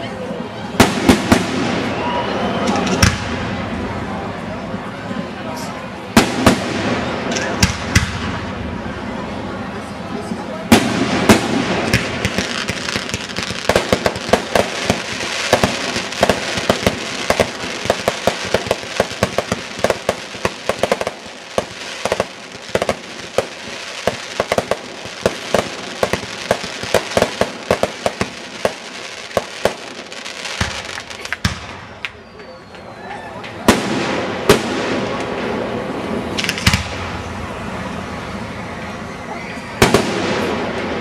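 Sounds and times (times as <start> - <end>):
fireworks pops and crackles: 2.7 - 3.4, 6.2 - 8.4, 10.7 - 35.6, 36.4 - 37.2, 39.8 - 40.8
fireworks hiss: 10.7 - 31.7.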